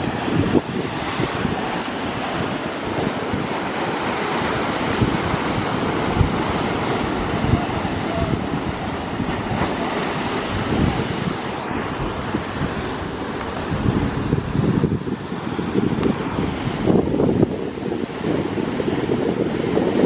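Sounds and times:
sea waves splashing on rocks: 0.0s - 13.8s
wind buffeting microphone: 0.0s - 20.0s.

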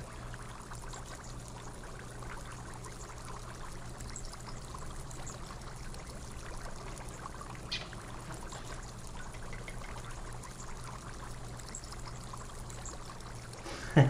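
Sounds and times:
faint low hum: 0.0s - 14.0s
steady background hiss: 1.4s - 14.0s.

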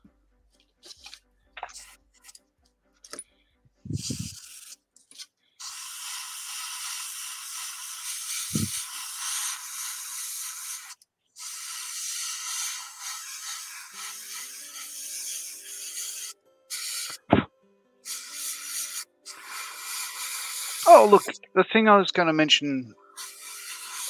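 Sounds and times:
sanding stick rubbing plastic: 3.9s - 4.8s, 5.6s - 17.3s, 18.1s - 21.3s, 23.2s - 24.0s.

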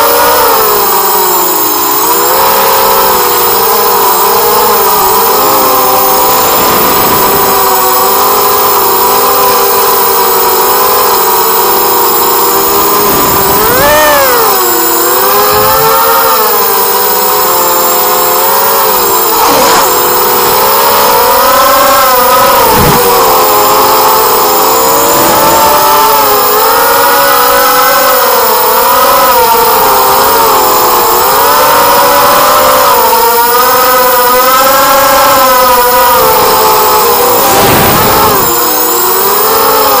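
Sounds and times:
quadcopter motors whining: 0.0s - 40.0s
gusty rushes: 13.0s - 14.4s, 22.5s - 23.6s, 37.4s - 38.6s.

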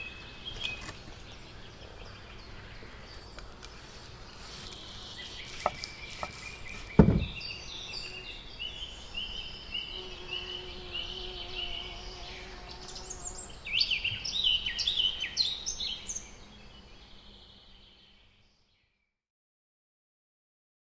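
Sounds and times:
songbirds chirping: 0.0s - 19.2s
sharp knock: 7.0s - 7.4s.

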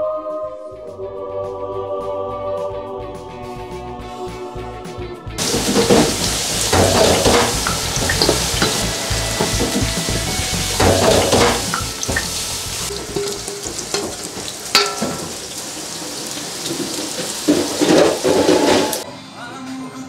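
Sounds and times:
batter sizzling in hot oil: 5.4s - 19.0s.

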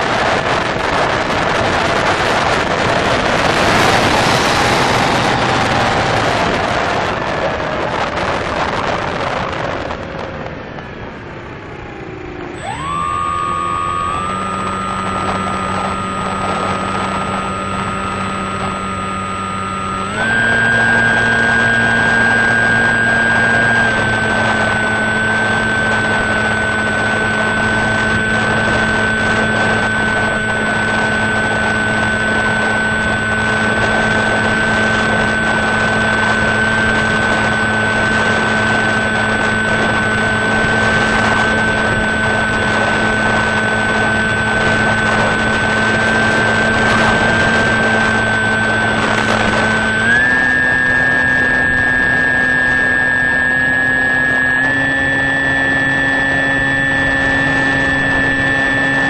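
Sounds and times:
electric motor high whine: 0.0s - 59.0s.

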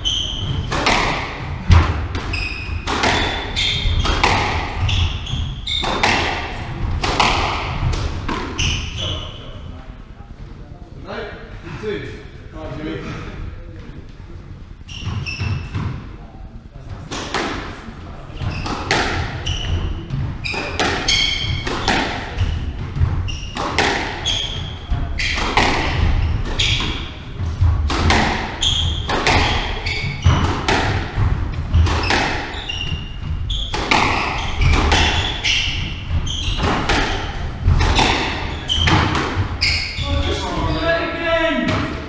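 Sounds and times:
shoes squeaking on wooden floor: 0.0s - 9.6s, 14.8s - 16.0s, 18.3s - 41.1s
squash ball hitting racket and walls: 0.0s - 9.6s, 14.9s - 16.2s, 16.9s - 40.9s, 41.5s - 42.0s.

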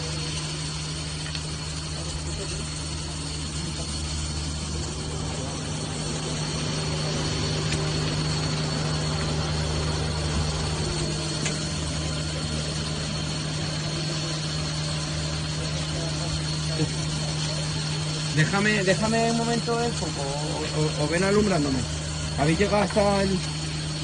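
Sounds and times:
machinery humming: 0.0s - 24.0s.

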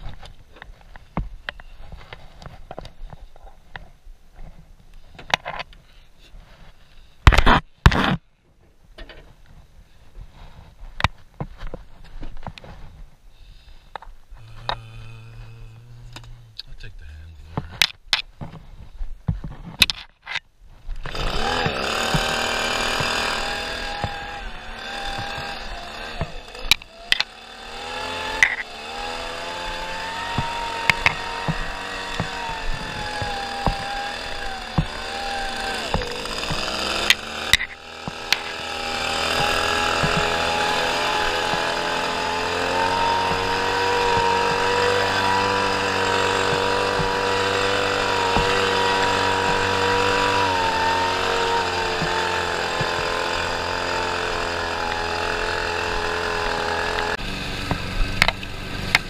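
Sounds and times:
lawn mower engine running: 21.0s - 59.0s.

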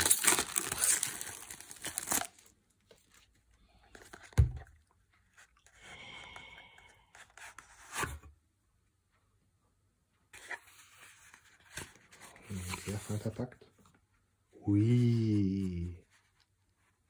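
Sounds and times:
plastic wrapping tearing: 0.0s - 2.5s.

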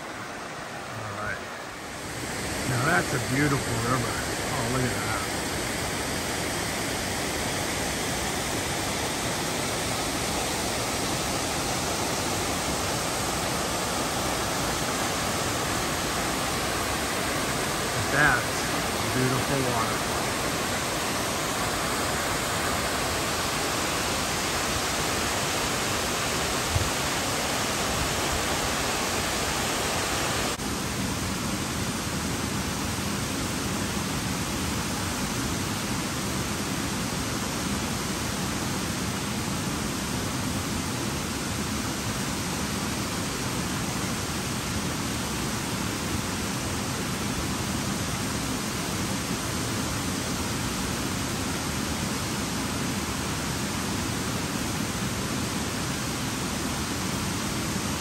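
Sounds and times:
waterfall rushing: 0.0s - 58.0s.

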